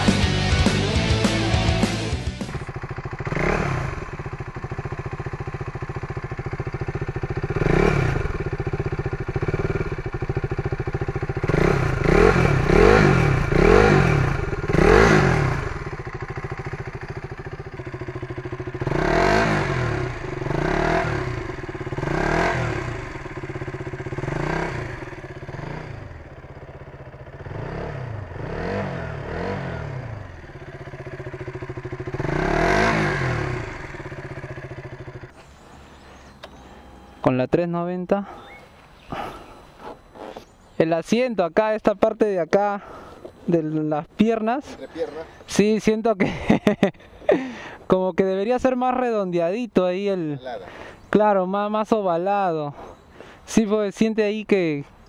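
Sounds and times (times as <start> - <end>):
motorcycle engine revving: 0.0 - 37.4, 38.2 - 40.8, 46.2 - 47.7.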